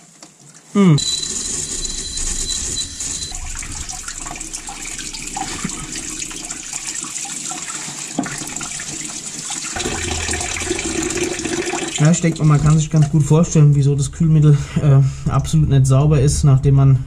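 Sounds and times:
hose water spraying and splashing: 0:01.6 - 0:13.0.

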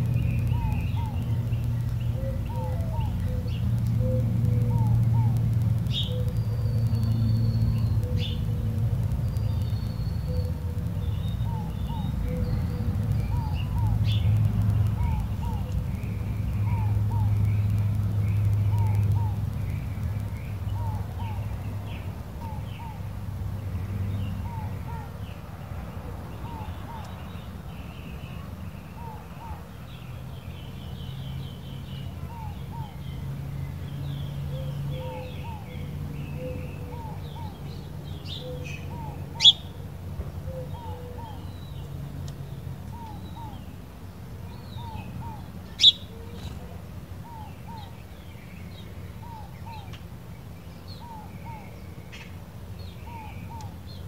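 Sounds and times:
small birds chirping: 0:00.0 - 0:54.0
doves cooing: 0:02.1 - 0:08.8, 0:14.8 - 0:17.6, 0:34.5 - 0:39.7, 0:40.4 - 0:41.5
sharp clicks: 0:03.5 - 0:11.8, 0:14.0 - 0:21.6.

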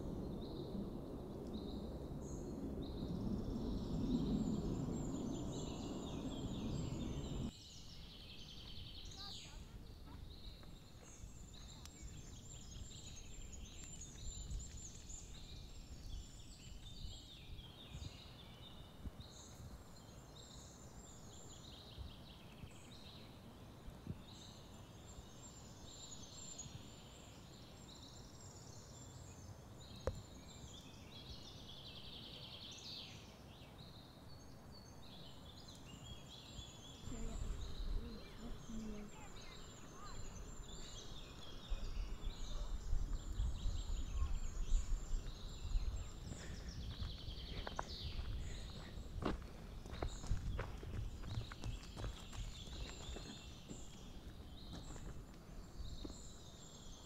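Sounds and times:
outdoor background hiss: 0:00.0 - 0:14.1
small birds chirping: 0:00.0 - 0:57.0.

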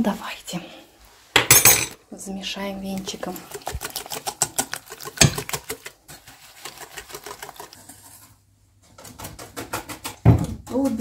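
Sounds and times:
whisk clicking against metal bowl: 0:02.9 - 0:08.1.

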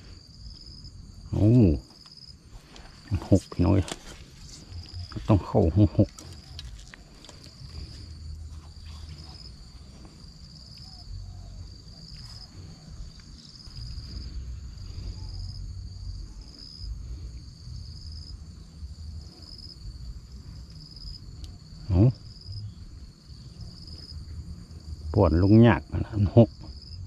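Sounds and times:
insects trilling: 0:00.0 - 0:27.0.

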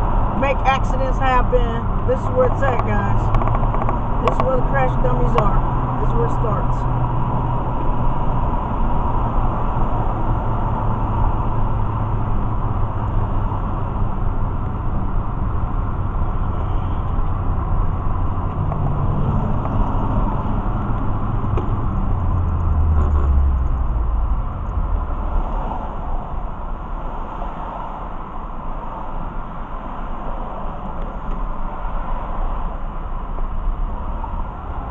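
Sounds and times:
car road and engine noise: 0:00.0 - 0:34.9
deep low rumble: 0:06.8 - 0:27.1.

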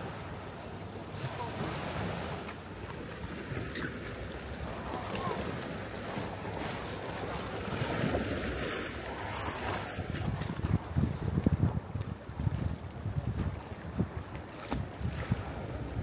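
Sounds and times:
sea water washing ashore: 0:00.0 - 0:16.0
wind noise on microphone: 0:03.2 - 0:16.0.

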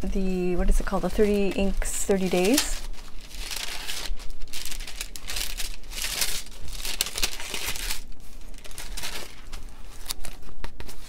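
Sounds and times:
notebook pages rustling: 0:00.7 - 0:11.0.

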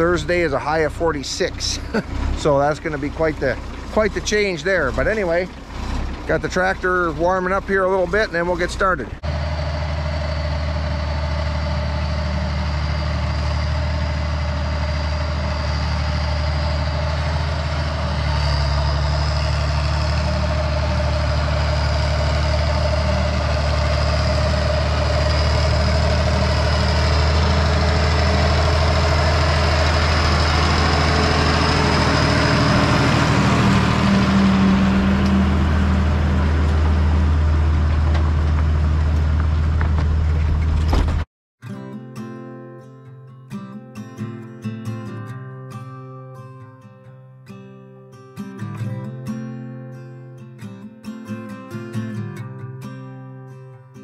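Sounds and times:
tractor engine running: 0:00.0 - 0:41.3.

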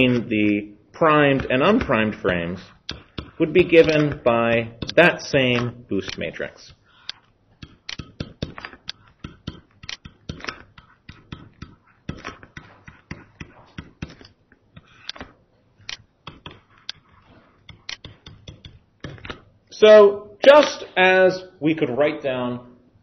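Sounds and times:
stylus tapping on tablet screen: 0:01.3 - 0:19.4.

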